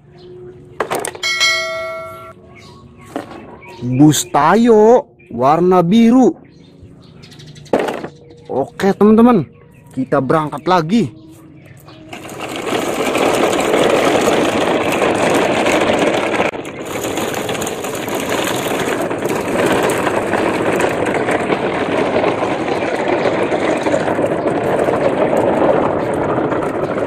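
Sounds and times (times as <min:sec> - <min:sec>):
toy trucks rumbling: 0:00.6 - 0:02.3, 0:07.4 - 0:27.0.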